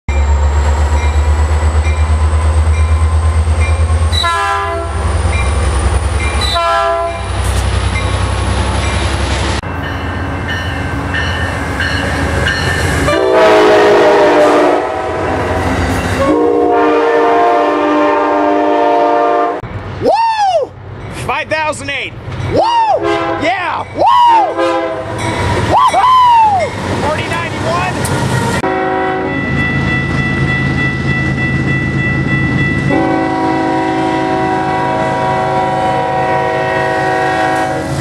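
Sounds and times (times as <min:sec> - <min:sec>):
diesel locomotive engine throbbing: 0:00.1 - 0:38.0
passenger train passing: 0:00.1 - 0:38.0
train horn blasts: 0:04.1 - 0:05.1, 0:06.4 - 0:07.4, 0:12.7 - 0:19.6, 0:23.0 - 0:23.5, 0:24.4 - 0:25.2, 0:28.6 - 0:29.7, 0:32.8 - 0:38.0.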